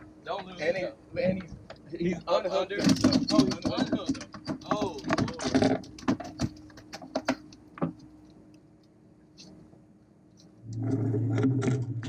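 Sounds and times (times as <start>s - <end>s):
low motor hum: 3.5s - 12.0s.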